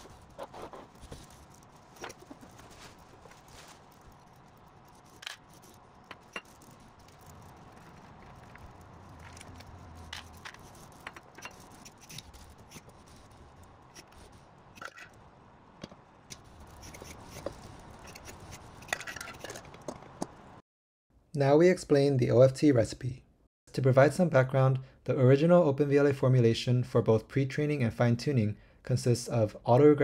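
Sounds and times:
gripper scraping steel pot: 0:00.0 - 0:14.2.

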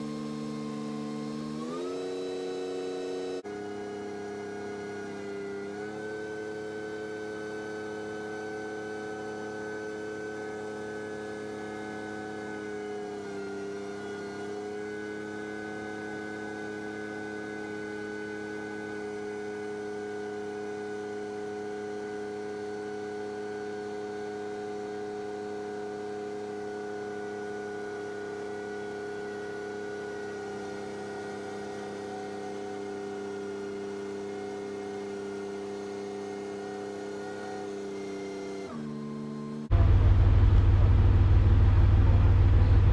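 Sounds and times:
diesel engine droning: 0:39.7 - 0:42.9.

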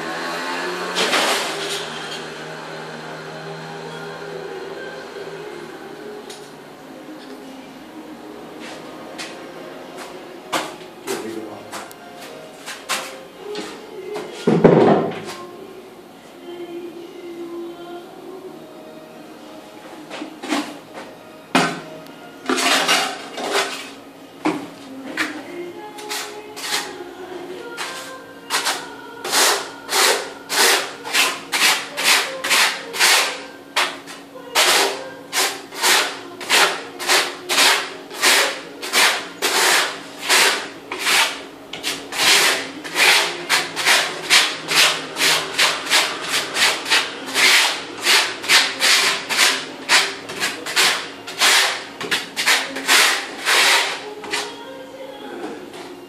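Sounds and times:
trowel scraping tile adhesive: 0:22.5 - 0:24.0, 0:26.1 - 0:26.9, 0:27.8 - 0:54.5.

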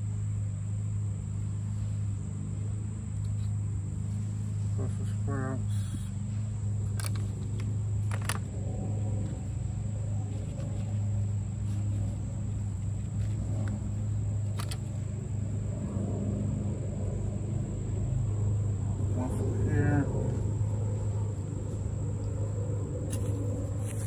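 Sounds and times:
low machine hum: 0:00.0 - 0:24.0
plastic pots clicking: 0:06.9 - 0:08.5.

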